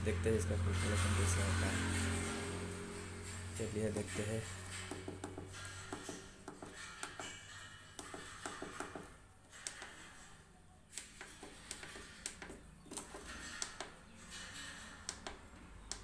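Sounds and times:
low hum: 0.0 - 5.9.

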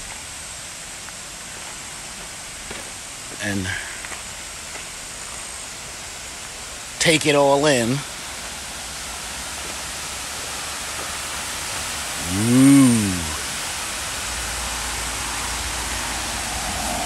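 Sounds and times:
water rushing over weir: 5.0 - 17.0
man humming: 12.2 - 13.6.

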